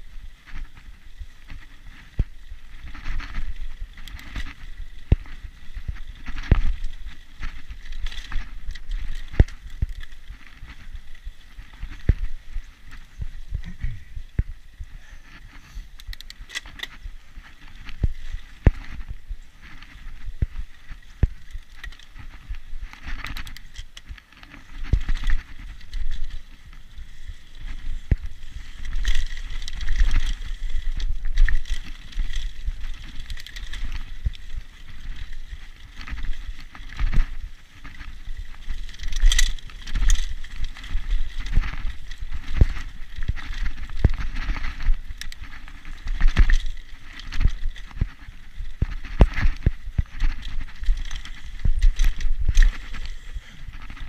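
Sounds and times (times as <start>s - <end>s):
bike clicks and rattles: 0.0s - 54.0s
low rumble of tyres: 0.0s - 54.0s.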